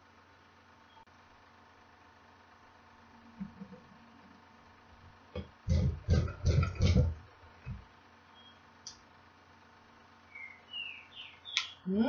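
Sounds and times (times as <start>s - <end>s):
bird chirps: 8.2s - 8.7s, 10.2s - 11.9s.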